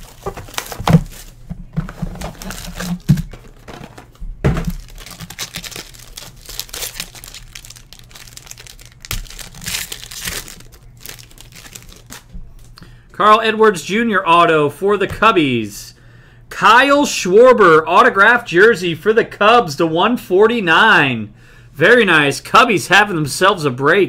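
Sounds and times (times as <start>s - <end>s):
packaging knocks: 0.0s - 12.2s
plastic wrapping crinkling and tearing: 0.0s - 12.7s.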